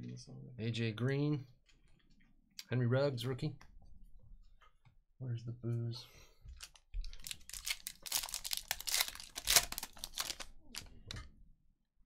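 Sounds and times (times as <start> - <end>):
foil wrapper tearing and crinkling: 7.1 - 10.9.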